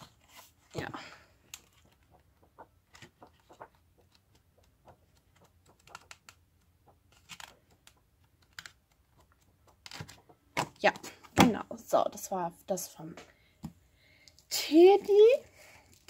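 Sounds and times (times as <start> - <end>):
paper pad pages turning: 1.5 - 10.4.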